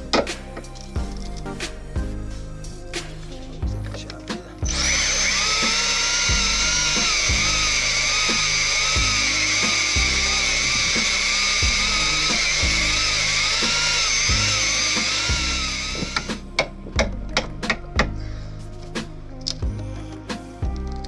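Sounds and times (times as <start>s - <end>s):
background music with steady beat: 0.0s - 21.0s
electric drill cutting with whine: 4.7s - 16.4s.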